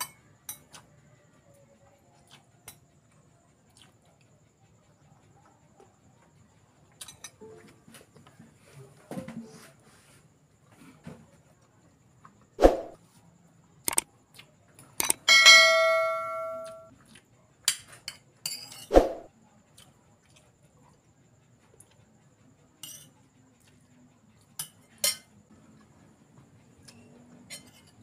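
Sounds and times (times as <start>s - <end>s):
spoon clinking against bowls: 0.0s - 0.8s, 15.0s - 16.9s, 17.7s - 18.9s, 22.8s - 23.2s, 24.6s - 25.3s, 27.4s - 28.0s
bell-like ringing strike: 15.3s - 16.9s.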